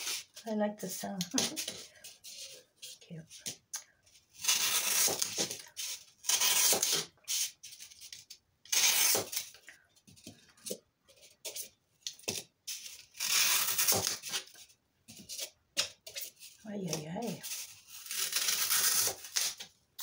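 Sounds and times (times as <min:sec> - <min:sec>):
knife cutting floral foam: 0:04.4 - 0:07.1.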